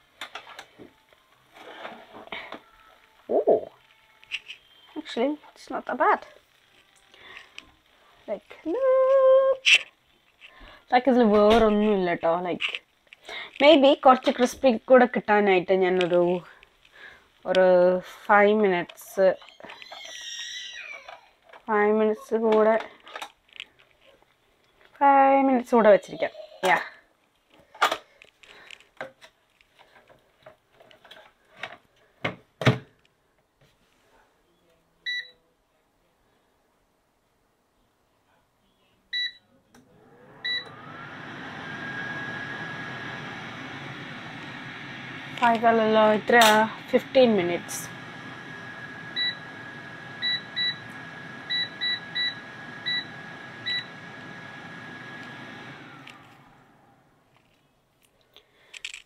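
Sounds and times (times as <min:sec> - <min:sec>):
steady high whine: 0:40.0 - 0:57.2.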